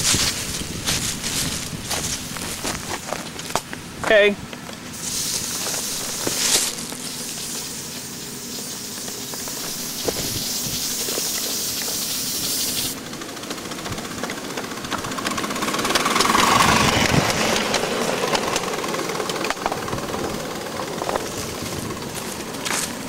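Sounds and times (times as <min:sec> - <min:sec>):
locomotive exhaust beats and clatter: 0:00.0 - 0:23.0
high steam hiss: 0:04.9 - 0:13.1.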